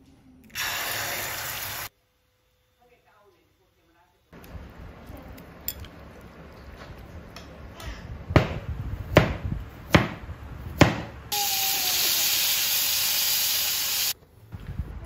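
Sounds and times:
food sizzling in a pan: 0.6 - 1.9, 11.3 - 14.2
knife chopping on cutting board: 10.8 - 11.1.

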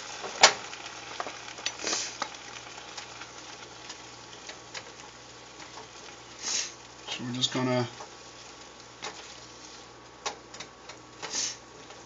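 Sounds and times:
vegetables sizzling in frying pan: 0.0 - 12.0.

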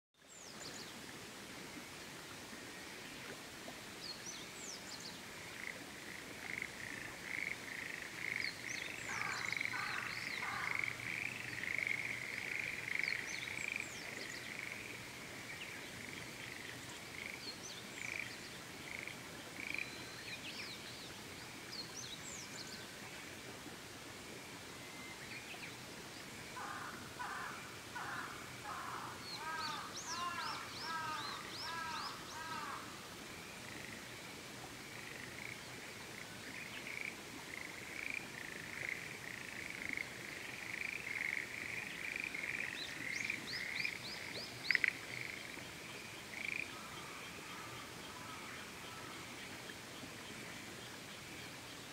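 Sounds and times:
steady background hiss: 0.2 - 51.9
frogs calling in rapid pulses: 5.6 - 13.8, 36.9 - 45.6.

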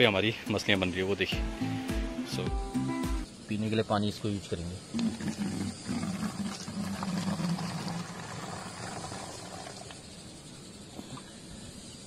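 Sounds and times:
water running: 4.9 - 10.2.

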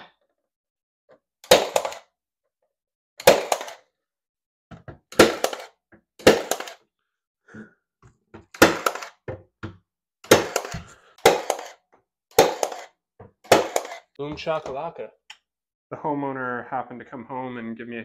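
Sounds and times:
pin nailer firing snaps: 1.4 - 2.0, 3.2 - 3.8, 5.1 - 6.8, 8.6 - 9.1, 12.4 - 12.9.

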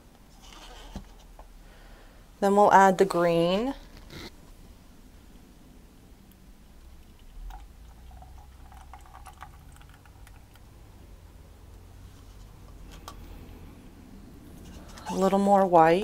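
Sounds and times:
paint pouring: 6.9 - 10.8.

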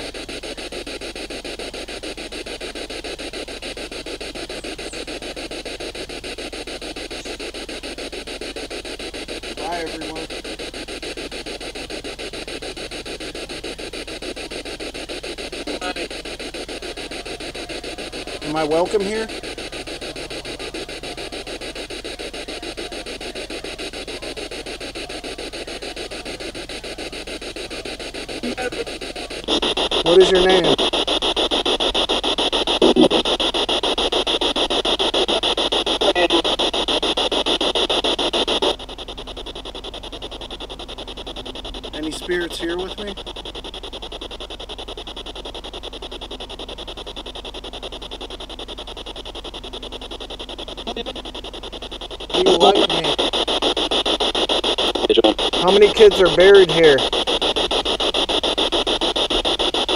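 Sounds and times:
pulsing radio static: 0.0 - 59.9.

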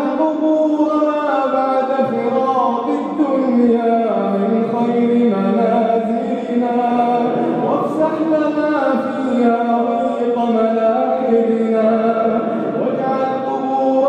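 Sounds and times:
man chanting: 0.0 - 14.0.

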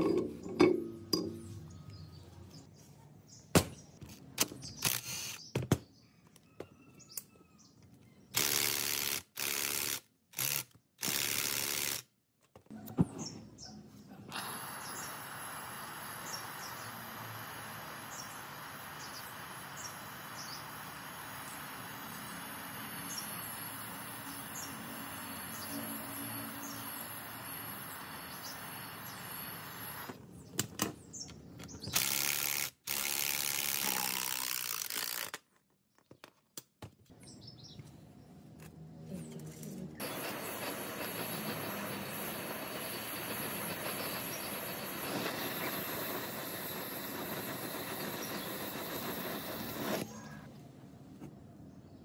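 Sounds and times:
small birds chirping: 1.3 - 8.3, 12.8 - 32.0, 37.1 - 50.5
loud hissing: 14.3 - 30.2, 40.0 - 50.3.

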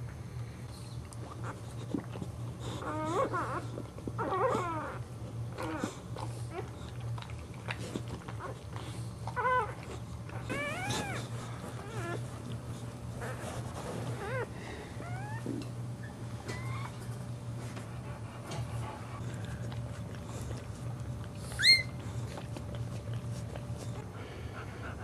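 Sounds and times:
low steady hum: 0.0 - 25.0
puppy crying: 2.8 - 5.0, 9.3 - 12.3, 14.2 - 17.1, 21.5 - 22.0.

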